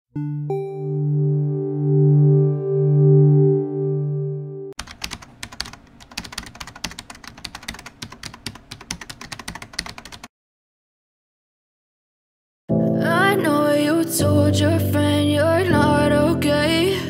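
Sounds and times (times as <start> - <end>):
keyboard typing clicks: 4.8 - 10.3.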